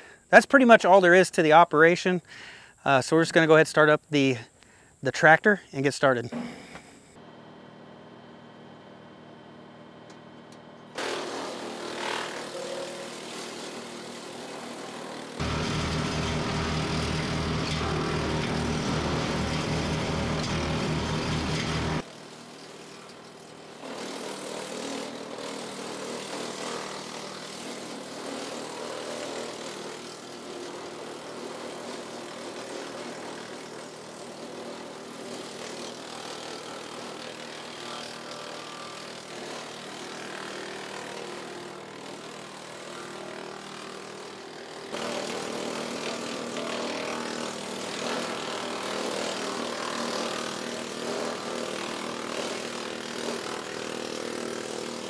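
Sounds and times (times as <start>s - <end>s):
wood chipper chipping limbs: 9.3s - 55.0s
tractor diesel engine drone: 15.4s - 22.0s.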